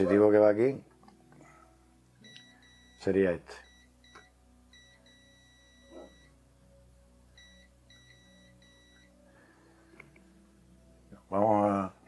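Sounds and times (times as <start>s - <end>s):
high electronic beeping: 2.2s - 6.4s, 7.4s - 9.1s.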